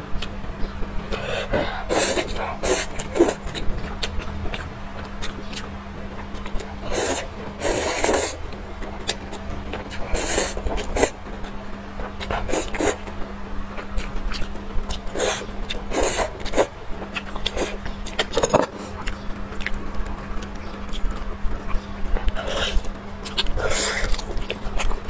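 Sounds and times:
steady low hum: 0.0 - 25.0
chewing and wet smacking: 2.0 - 25.0
wet chewing clicks: 13.8 - 25.0.

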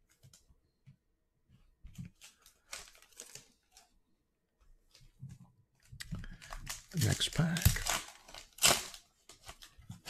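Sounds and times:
rustling of trading cards: 1.5 - 4.0, 4.7 - 10.0
foil pack crinkling: 2.2 - 3.9, 6.3 - 10.0.

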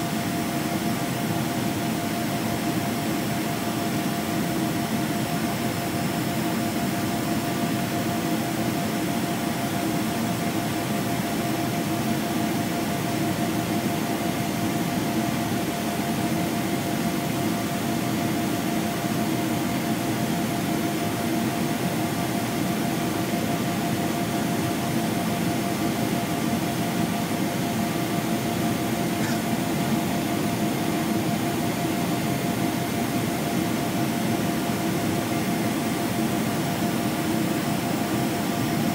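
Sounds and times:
airplane cabin drone: 25.8 - 36.6.

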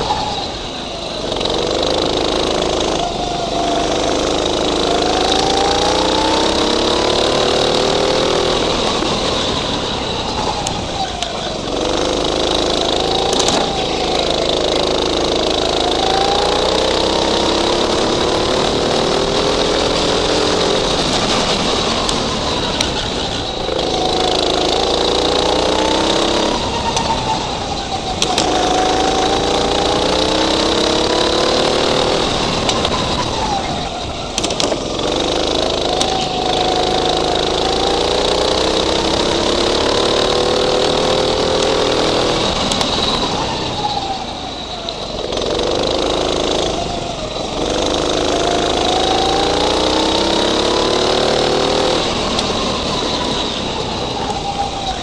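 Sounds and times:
go-kart engine revving: 0.0 - 55.0
steady high whine: 0.0 - 55.0.

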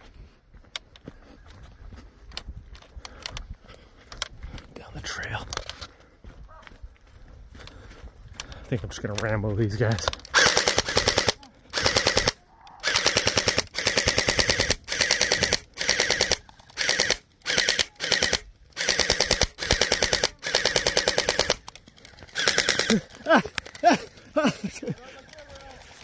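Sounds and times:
gel blaster firing bursts: 10.3 - 21.6, 22.4 - 23.0.

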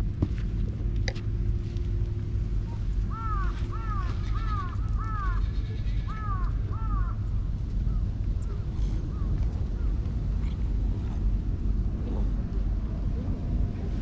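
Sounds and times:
low background rumble: 0.0 - 14.0
crow cawing: 3.1 - 7.2.

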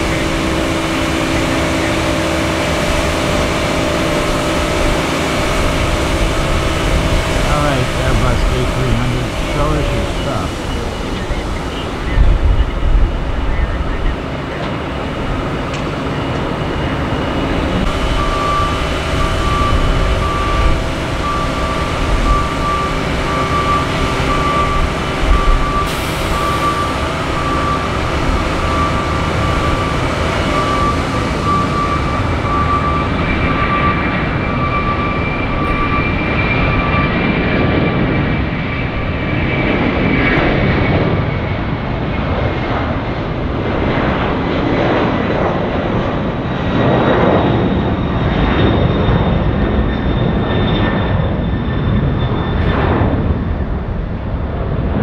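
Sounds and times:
high engine whine: 0.0 - 55.0
jet engines at takeoff: 0.0 - 55.0.

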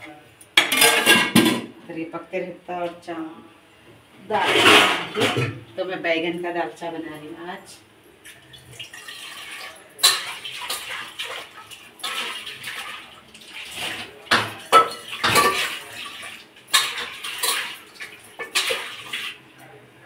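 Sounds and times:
steel pot and utensils clattering: 0.0 - 1.8, 4.3 - 5.7, 8.2 - 19.7
water splashing: 8.3 - 19.4.

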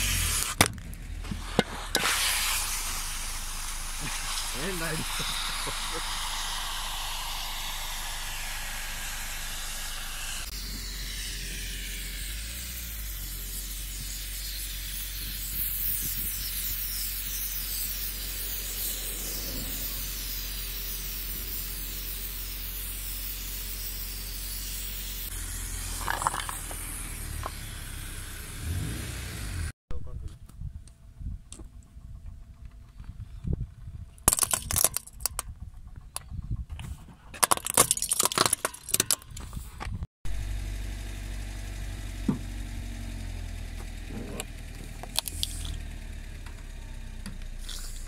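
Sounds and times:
aerosol can hissing: 0.0 - 0.6, 1.2 - 29.0, 45.2 - 45.8, 47.5 - 48.0.

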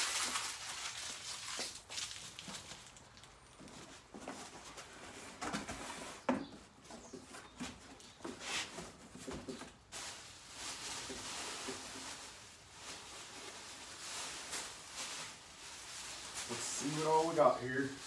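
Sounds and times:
packing material rustling: 0.0 - 3.8, 9.7 - 18.0.

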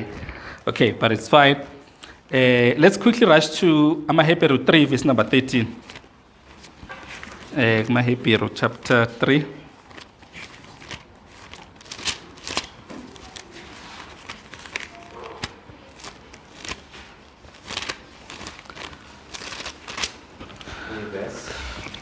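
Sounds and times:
thin paper pages flipping: 5.8 - 8.1, 9.8 - 20.7.

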